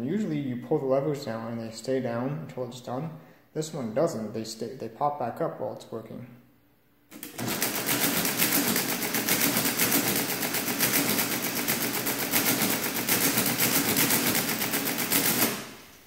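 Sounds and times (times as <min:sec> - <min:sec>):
mechanical calculator clattering: 0:07.2 - 0:15.8.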